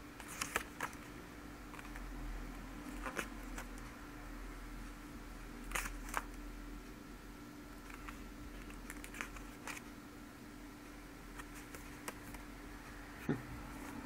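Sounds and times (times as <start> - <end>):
faint steady hum: 0.0 - 14.0
book pages turning: 0.2 - 1.1, 5.7 - 6.3, 7.8 - 9.9, 11.3 - 12.4.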